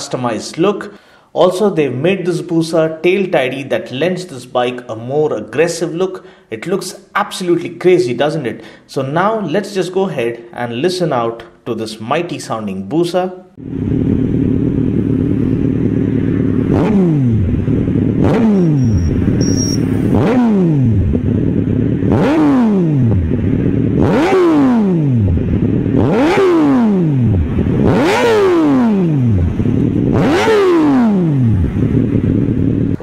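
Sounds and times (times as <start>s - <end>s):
motorcycle engine revving: 13.6s - 33.0s.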